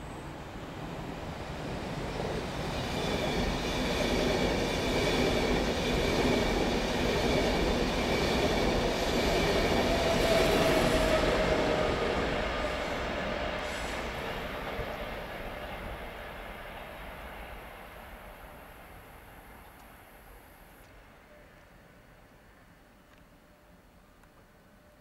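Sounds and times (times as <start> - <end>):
train wheels rumbling on track: 0.2 - 20.1.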